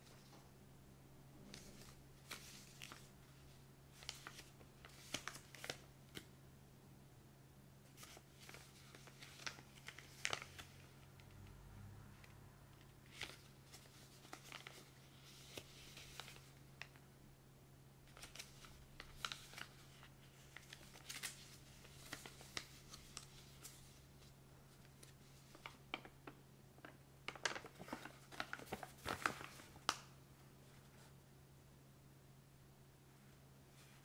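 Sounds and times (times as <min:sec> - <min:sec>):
paper crinkling: 0:01.5 - 0:06.3, 0:07.9 - 0:10.9, 0:13.0 - 0:17.0, 0:18.1 - 0:30.1.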